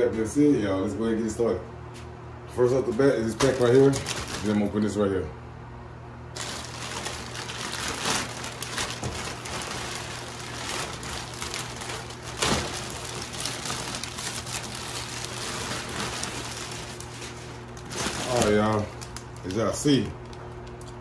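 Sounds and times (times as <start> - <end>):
plastic bag crinkling and tearing: 3.2 - 4.9, 6.4 - 20.9.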